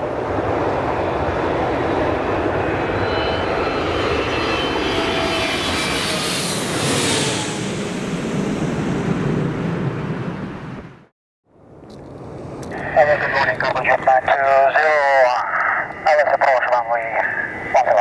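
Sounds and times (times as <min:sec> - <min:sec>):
high jet whine sliding down: 0:00.0 - 0:10.9
jet engines passing overhead: 0:00.0 - 0:11.1, 0:11.7 - 0:18.0.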